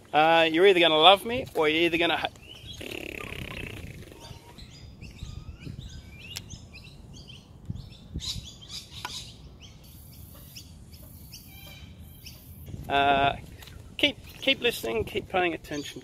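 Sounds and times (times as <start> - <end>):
birds chirping: 0.0 - 12.8, 13.5 - 16.0
wind rumble: 1.0 - 9.8, 11.8 - 15.7
microphone handling: 2.4 - 5.3.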